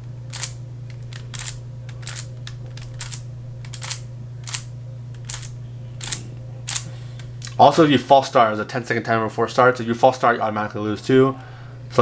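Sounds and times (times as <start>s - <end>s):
steady low hum: 0.0s - 12.0s
puzzle cube turning clicks: 0.3s - 4.6s, 5.2s - 7.6s.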